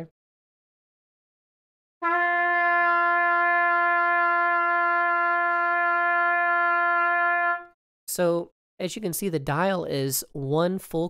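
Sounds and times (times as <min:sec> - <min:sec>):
trumpet long tuning note: 0:02.0 - 0:07.8.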